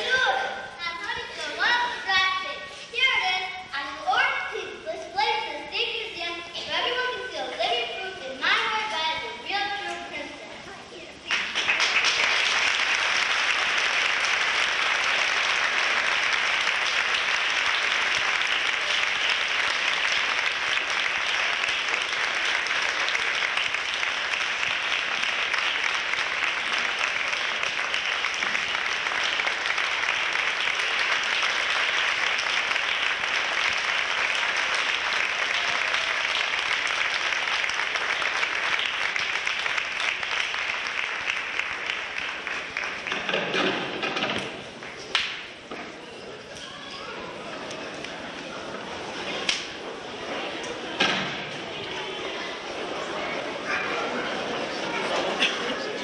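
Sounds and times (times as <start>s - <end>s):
audience applauding: 11.2s - 56.0s.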